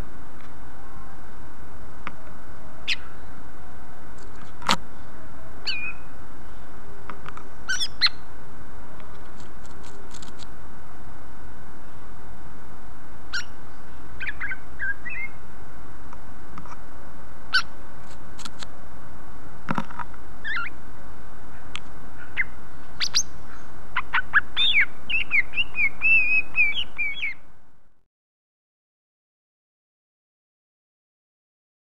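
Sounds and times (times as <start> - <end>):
background hiss: 0.0 - 28.0
bird chirping and singing: 5.6 - 6.0, 7.7 - 8.2, 13.3 - 13.6, 14.2 - 15.4, 20.4 - 20.7, 22.3 - 27.4.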